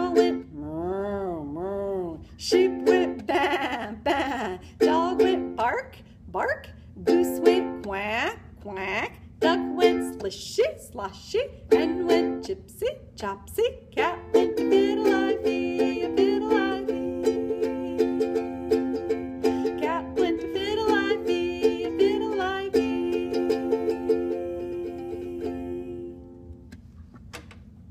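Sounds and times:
ukulele strumming: 0.0s - 0.5s, 2.4s - 5.8s, 7.0s - 8.2s, 9.4s - 10.8s, 11.4s - 12.6s, 14.0s - 26.8s
woman singing: 0.0s - 26.5s.

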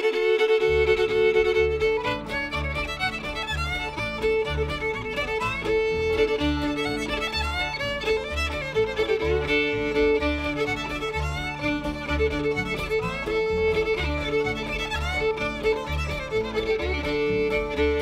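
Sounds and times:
fiddle tune: 0.0s - 18.0s
upright bass: 0.1s - 18.0s.

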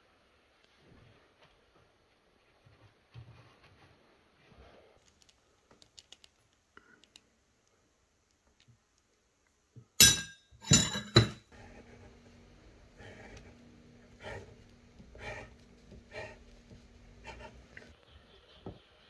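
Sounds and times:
metal spoon clinking on dish: 10.0s - 11.4s.

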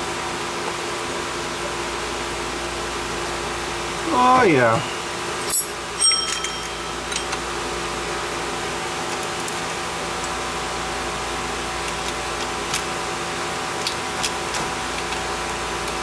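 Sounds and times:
steady hum and hiss: 0.0s - 16.0s
metal tools clinking: 5.4s - 7.4s.

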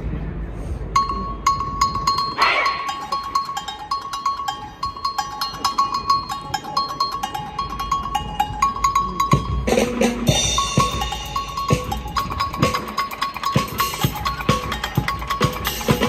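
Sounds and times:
bell-like percussion strikes: 1.0s - 16.0s.

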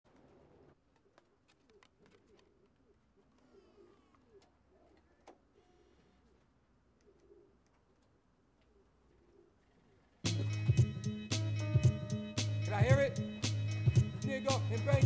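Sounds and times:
faint pigeons cooing: 0.1s - 10.8s.

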